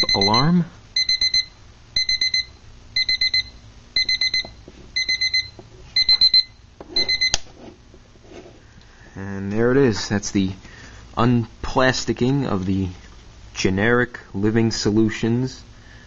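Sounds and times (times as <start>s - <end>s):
alarm clock beeping: 0.0s - 7.4s.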